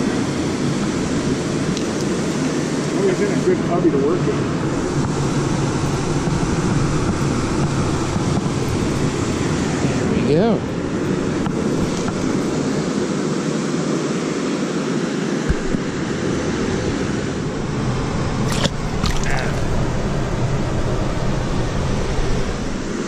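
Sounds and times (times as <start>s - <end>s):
water rushing through spillway: 15.5s - 23.0s.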